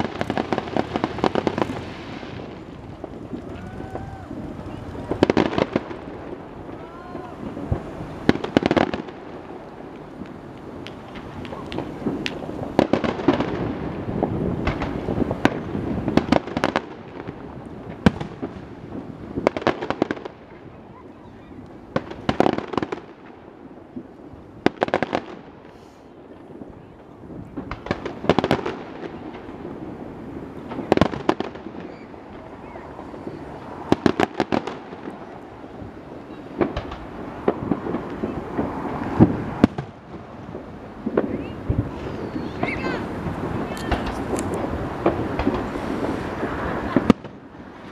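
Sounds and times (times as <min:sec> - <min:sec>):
fireworks cracking and popping: 0:00.0 - 0:47.9
loud firework bang: 0:10.2 - 0:20.3, 0:30.6 - 0:47.9.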